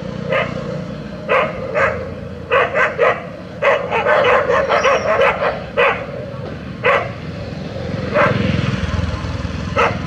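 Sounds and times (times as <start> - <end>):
dogs barking: 0.2 - 8.9, 9.6 - 10.0.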